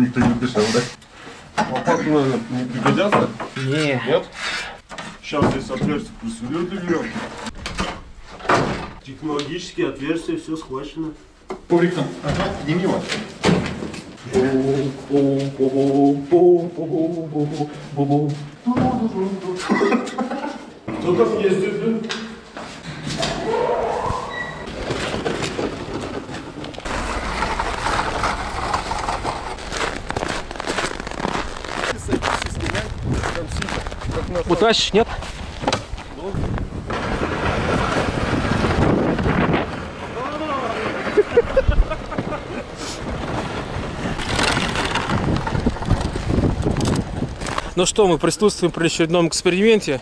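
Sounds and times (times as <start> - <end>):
knocks and rustling: 4.8 - 6.4, 7.1 - 9.0, 11.4 - 14.3, 22.0 - 34.3, 35.1 - 47.7
coffin dragged over snow: 26.8 - 35.6, 36.8 - 47.7
wind buffeting microphone: 31.9 - 48.2.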